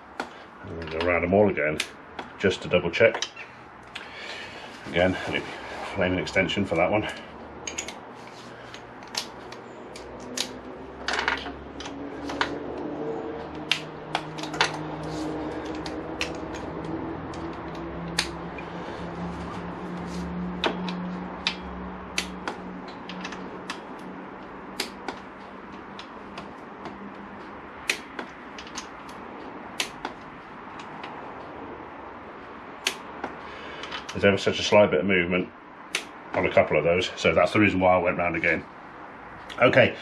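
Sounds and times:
metal tool clicks and clacks: 7.7 - 8.0.

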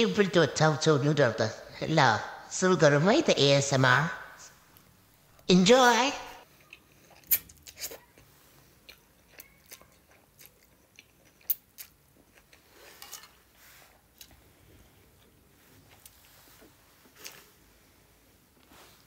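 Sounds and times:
chewing crunchy noodles: 6.4 - 16.4.

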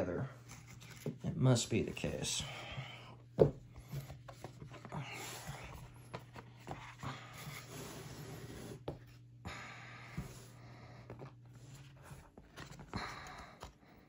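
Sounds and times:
low steady hum: 0.0 - 14.0
cardboard rubbing and scraping: 3.8 - 9.2.

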